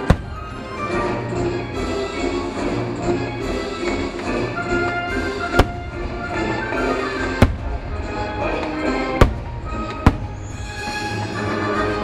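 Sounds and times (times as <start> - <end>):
fireworks banging: 0.0 - 1.2, 4.1 - 10.9
music: 0.0 - 12.0.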